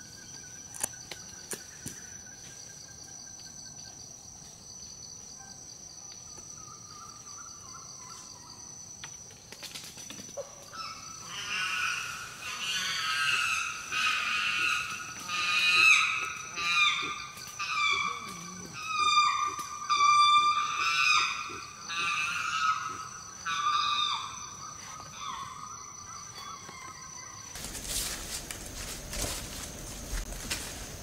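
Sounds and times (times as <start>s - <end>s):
high animal calls gliding down: 10.8s - 25.7s.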